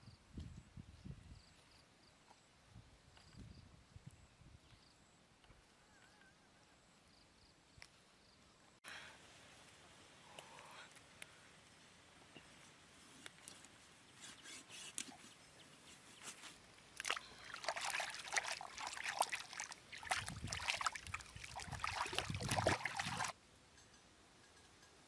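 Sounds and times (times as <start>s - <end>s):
hands splashing in water: 17.0s - 23.3s.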